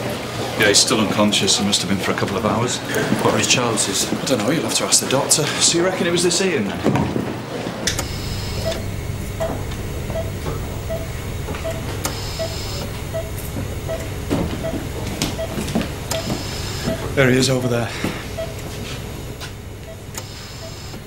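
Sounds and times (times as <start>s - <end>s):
steady low hum: 7.8s - 21.0s
patient monitor beeping: 7.9s - 21.0s.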